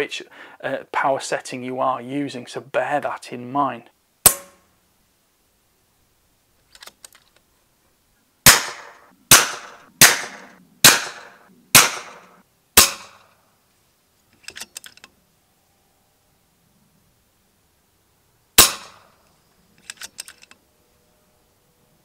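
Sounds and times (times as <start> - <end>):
air rifle shots: 8.4 - 13.2, 18.6 - 19.1.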